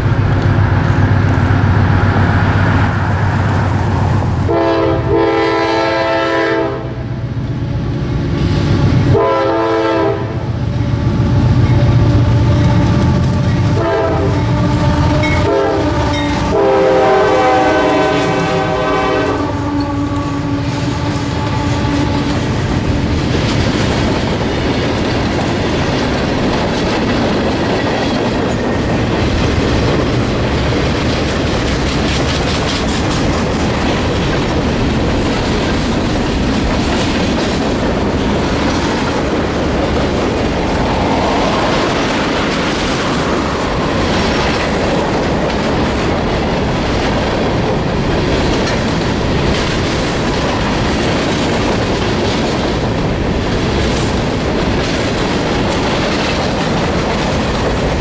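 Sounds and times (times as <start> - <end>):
diesel locomotive engine rumble: 0.0 - 58.0
train air horn blasts: 4.4 - 7.0, 9.1 - 10.4, 11.9 - 22.6
train wheels clacking on rails: 11.4 - 58.0.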